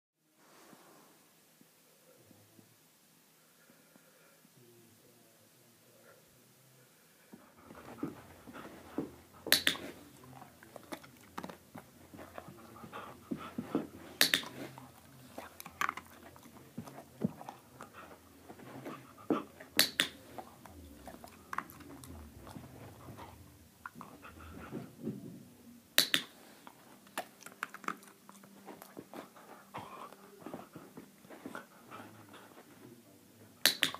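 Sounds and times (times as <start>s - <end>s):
dog panting softly: 7.3s - 25.3s, 26.4s - 33.2s
dog mouthing object: 7.6s - 25.0s.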